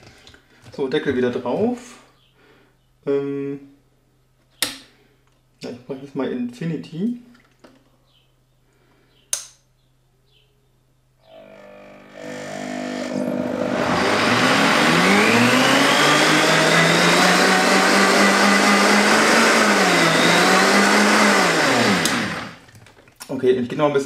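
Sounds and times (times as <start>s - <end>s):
blender motor whining: 11.2s - 22.7s.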